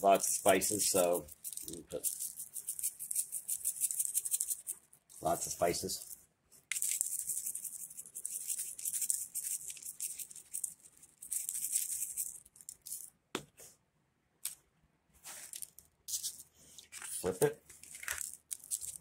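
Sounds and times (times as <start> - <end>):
spice shaker rattling: 0.2 - 13.2, 15.3 - 19.0.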